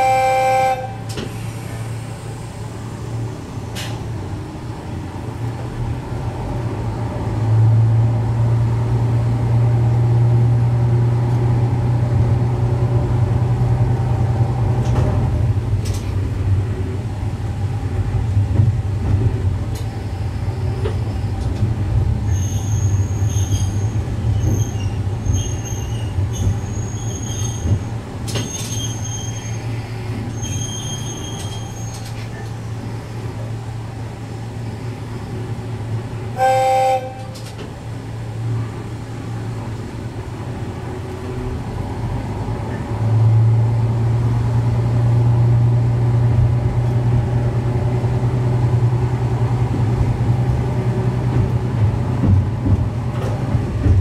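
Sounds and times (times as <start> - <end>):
railcar engine drone: 0.0 - 54.0
high-pitched wheel squeals: 22.3 - 32.4.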